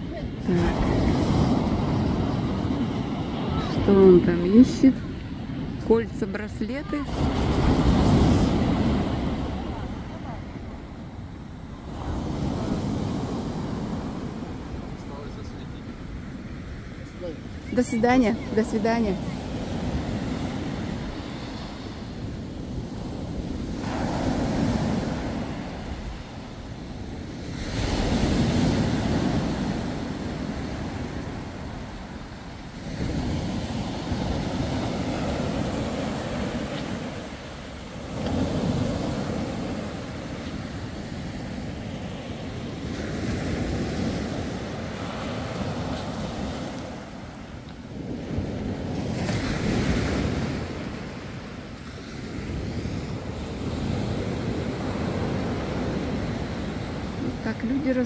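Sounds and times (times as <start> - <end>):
surf breaking on beach: 0.0 - 11.0, 11.7 - 58.0
wind rumbling on microphone: 0.0 - 58.0
waves washing up a pebble shore: 17.3 - 58.0.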